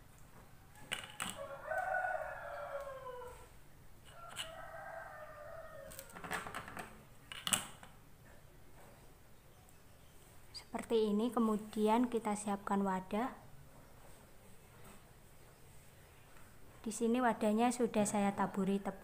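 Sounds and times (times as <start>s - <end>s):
rooster crowing: 0.7s - 6.3s.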